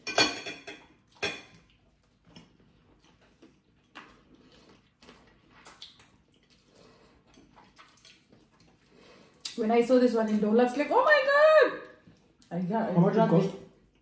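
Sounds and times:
cutlery clinking on plates: 0.0s - 1.7s.

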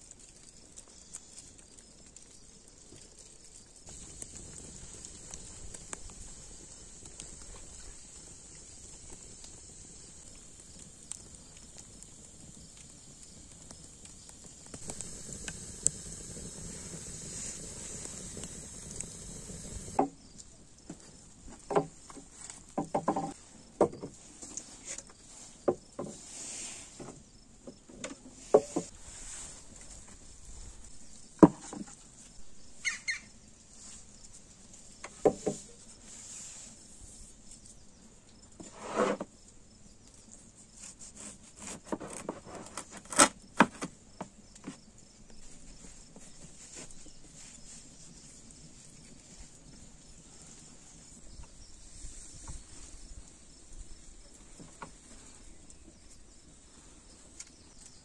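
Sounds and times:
steady high hiss: 3.8s - 20.8s.

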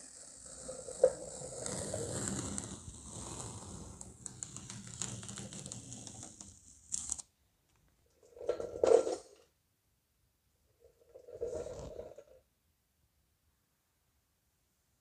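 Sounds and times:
masking tape peeling: 0.1s - 7.2s.

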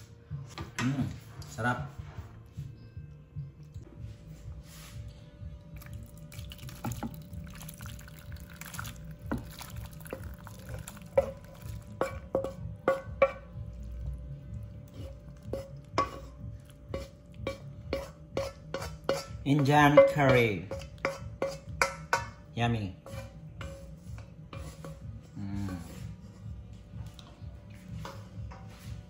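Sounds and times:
thick curry pouring and plopping: 5.8s - 13.3s.

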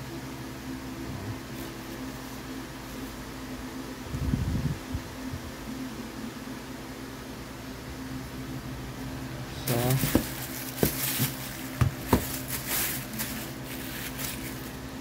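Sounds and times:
plastic wrapping crinkling: 9.6s - 15.0s.

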